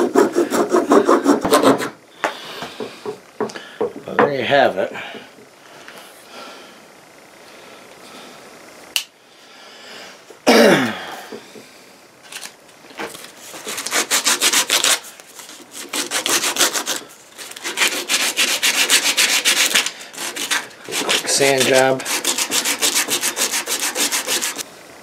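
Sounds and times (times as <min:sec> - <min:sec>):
sandpaper rubbing on wood: 0:00.0 - 0:01.9, 0:13.5 - 0:24.6.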